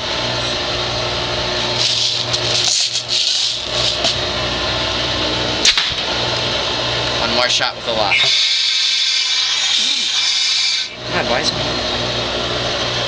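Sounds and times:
mechanical hum with rattle: 0.0 - 13.0
airsoft gun firing pop: 5.6 - 6.0.

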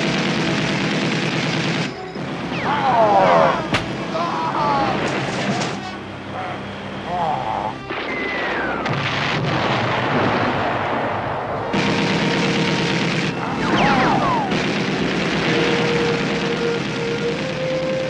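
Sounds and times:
machine gun firing bursts: 0.0 - 2.6, 11.7 - 18.0
steady background noise: 0.0 - 18.0
short falling whines: 13.4 - 14.6.

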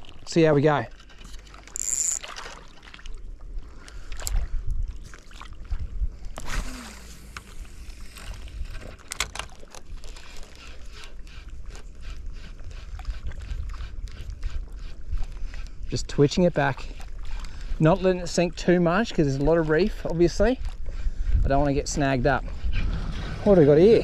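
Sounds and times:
wind buffeting microphone: 11.6 - 24.0.

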